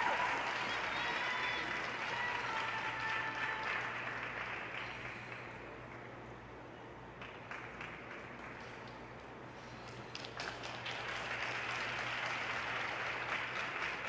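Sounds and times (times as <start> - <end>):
audience applauding: 0.0 - 6.0, 10.1 - 14.0.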